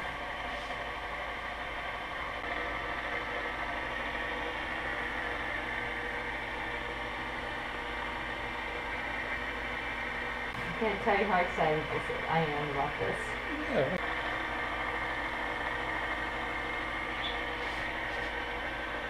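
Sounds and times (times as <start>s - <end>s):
stand mixer motor whirring: 0.0s - 19.0s.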